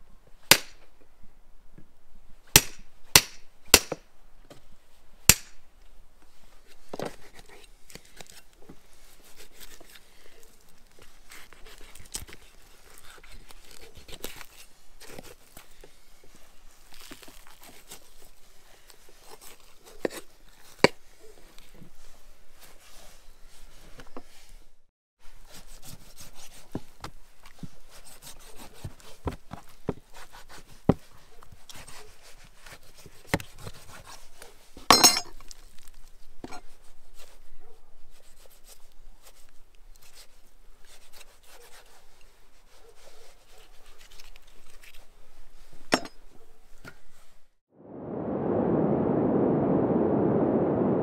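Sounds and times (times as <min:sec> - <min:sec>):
knife cutting and scraping meat: 0:07.1 - 0:15.8, 0:16.8 - 0:20.8, 0:27.7 - 0:34.5, 0:38.1 - 0:45.1.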